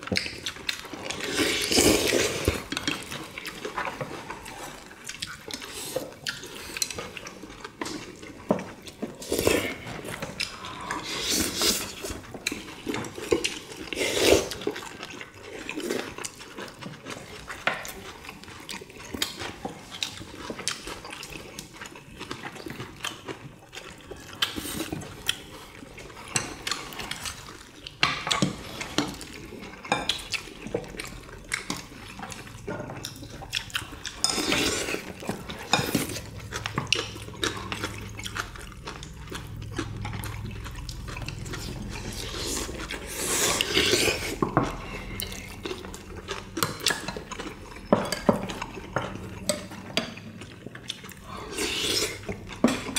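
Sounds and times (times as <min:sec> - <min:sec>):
utensils clinking against bowls: 0:28.0 - 0:52.9
wet liquid slurping sounds: 0:33.2 - 0:47.6.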